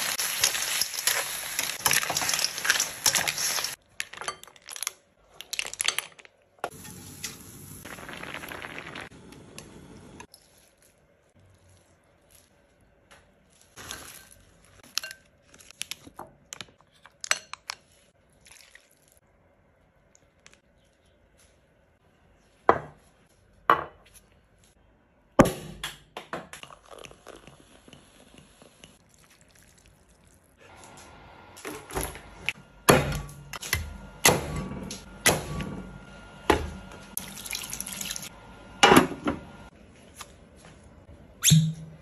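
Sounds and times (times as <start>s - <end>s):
liquid dripping and pouring: 18.3s - 19.2s, 26.6s - 30.6s, 37.2s - 38.3s.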